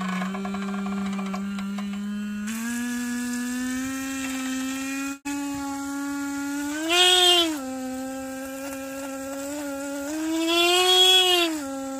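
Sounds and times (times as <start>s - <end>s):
underwater horn buzzing: 5.2s - 11.9s.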